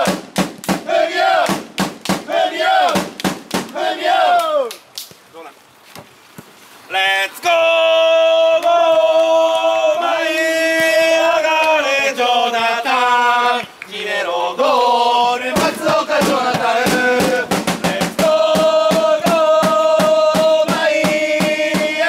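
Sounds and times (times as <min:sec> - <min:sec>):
football supporters chanting: 0:00.0 - 0:00.2, 0:00.8 - 0:04.7, 0:06.9 - 0:22.0
drum beating steadily: 0:00.0 - 0:03.8, 0:15.5 - 0:22.0.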